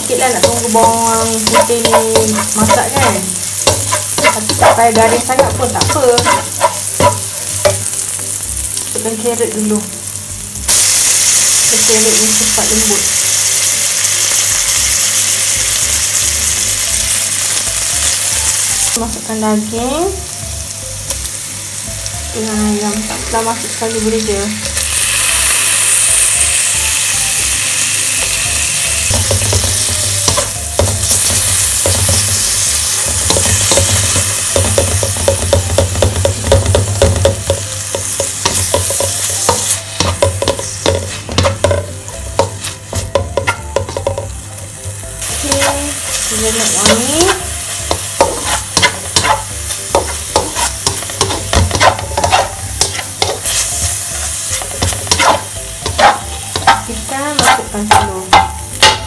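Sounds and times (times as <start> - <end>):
spatula scraping a wok: 0.0 - 8.1, 24.7 - 44.4, 45.2 - 59.0
meat sizzling in a wok: 0.0 - 59.0.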